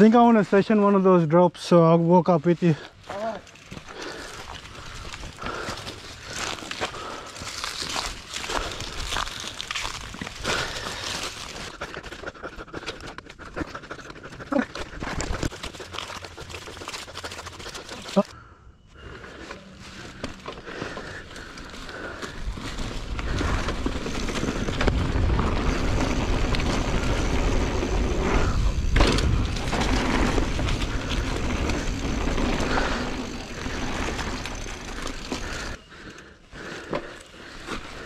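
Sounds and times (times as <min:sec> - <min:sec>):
wind rumbling on microphone: 0:22.3 - 0:34.8.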